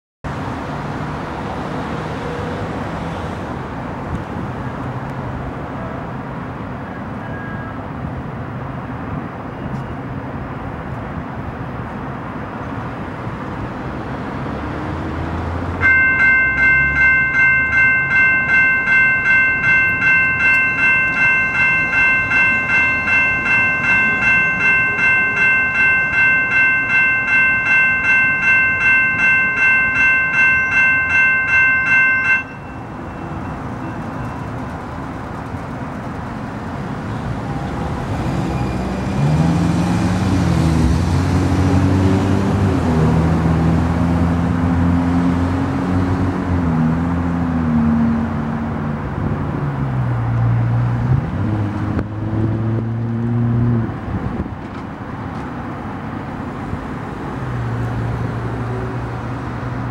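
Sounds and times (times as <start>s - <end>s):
steady background noise: 0.3s - 50.6s
railroad crossing bell chiming: 15.7s - 39.5s.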